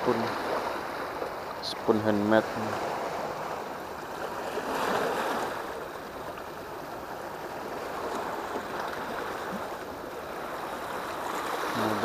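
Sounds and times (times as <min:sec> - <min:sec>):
waves splashing over rocks: 0:00.0 - 0:12.0.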